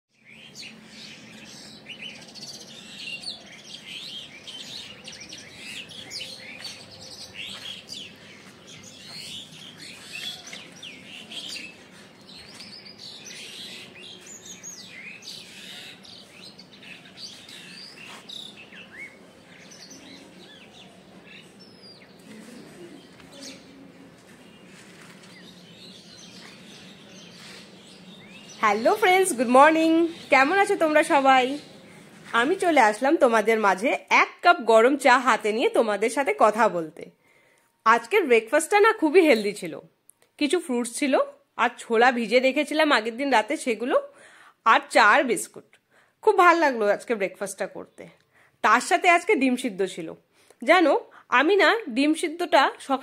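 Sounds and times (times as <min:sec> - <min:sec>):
small birds chirping: 0:00.1 - 0:34.0.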